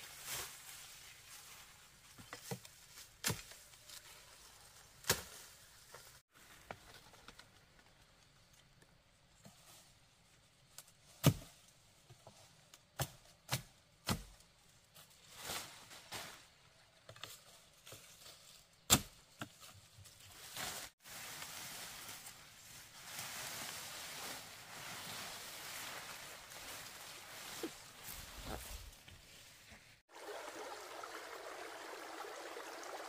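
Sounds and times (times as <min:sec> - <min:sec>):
machete chopping branches: 0:05.0 - 0:05.4, 0:11.2 - 0:11.6, 0:13.0 - 0:14.4, 0:18.9 - 0:19.2.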